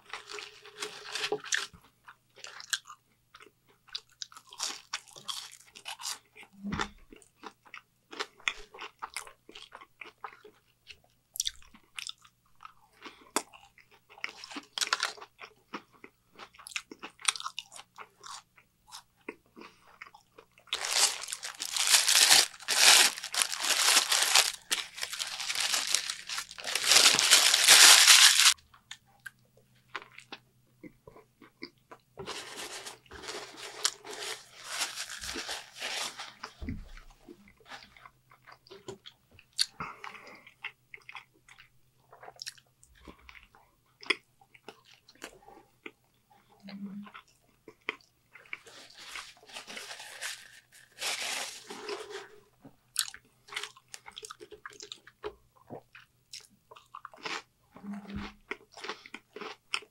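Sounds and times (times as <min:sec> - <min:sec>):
faint electrical hum: 0:00.0 - 0:59.9
paper wrapper crinkling: 0:00.1 - 0:01.7, 0:20.7 - 0:28.6, 0:32.2 - 0:36.6, 0:48.6 - 0:52.2
crunchy chewing: 0:11.4 - 0:28.6, 0:58.5 - 0:59.9.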